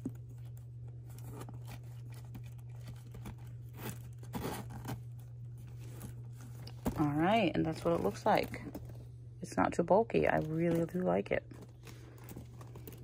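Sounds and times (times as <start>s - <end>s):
steady low hum: 0.0s - 13.0s
hands rustling a pouch: 10.4s - 13.0s.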